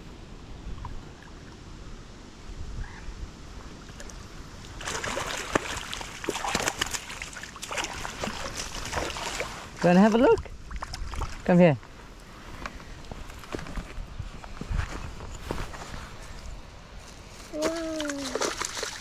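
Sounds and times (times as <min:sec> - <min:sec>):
fish splashing at water surface: 0:04.8 - 0:09.8, 0:17.6 - 0:19.0.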